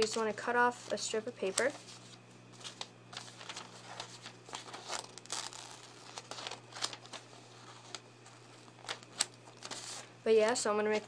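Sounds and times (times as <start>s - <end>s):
paper crinkling and rustling: 0.0s - 11.0s.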